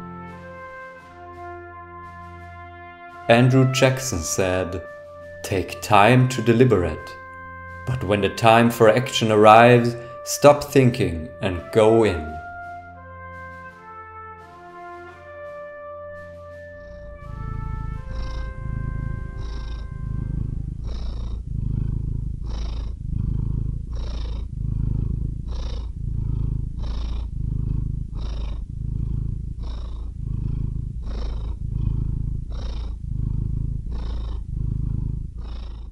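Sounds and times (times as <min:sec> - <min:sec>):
brass music: 0:00.0 - 0:21.5
cat purring: 0:00.0 - 0:35.9.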